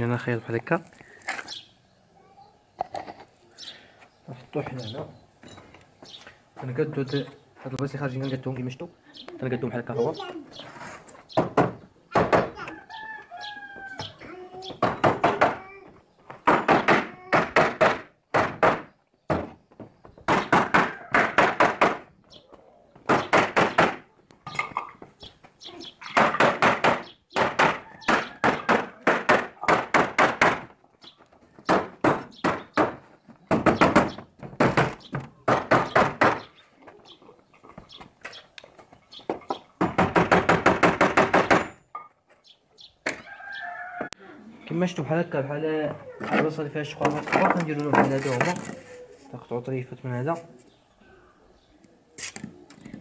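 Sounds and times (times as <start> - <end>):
hammer striking a wood chisel: 39.8 - 41.8.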